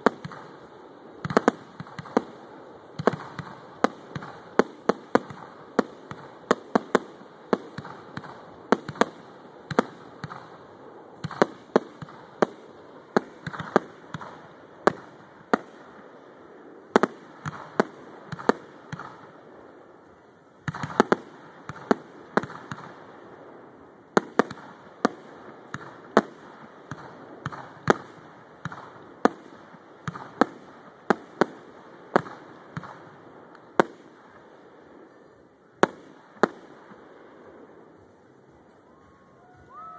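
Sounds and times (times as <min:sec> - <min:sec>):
fireworks bangs: 0:00.0 - 0:39.9.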